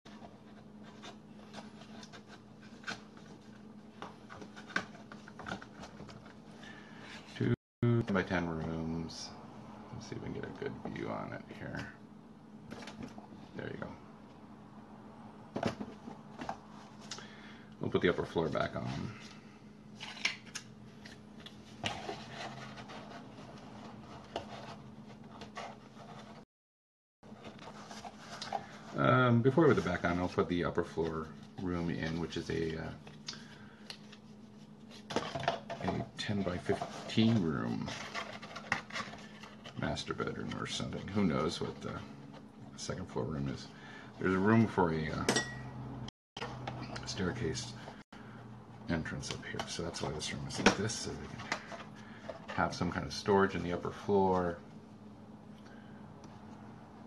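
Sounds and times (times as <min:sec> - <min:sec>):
paper rustling and scraping: 0:00.1 - 0:07.5, 0:20.0 - 0:26.4, 0:27.2 - 0:32.4, 0:34.0 - 0:42.4
steady low hum: 0:00.1 - 0:26.4, 0:27.2 - 0:57.0.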